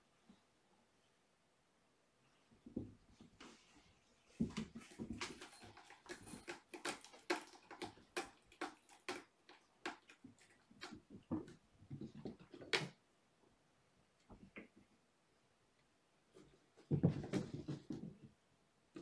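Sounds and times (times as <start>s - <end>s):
kitten claws scratching and clicking: 5.2s - 11.1s.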